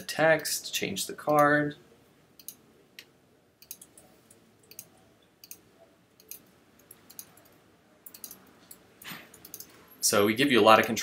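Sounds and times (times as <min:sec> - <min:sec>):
computer mouse clicks: 0:02.4 - 0:05.6, 0:06.2 - 0:09.8.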